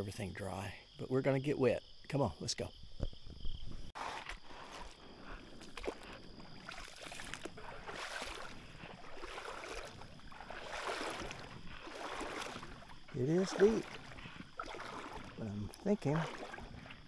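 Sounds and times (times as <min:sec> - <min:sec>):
water sloshing from wading: 0:03.0 - 0:17.0.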